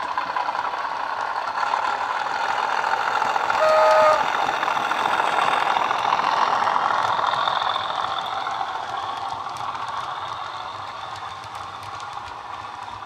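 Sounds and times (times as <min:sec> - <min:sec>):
model wheels clicking on track: 0:00.0 - 0:13.0
diesel engine through small speaker: 0:02.9 - 0:08.7.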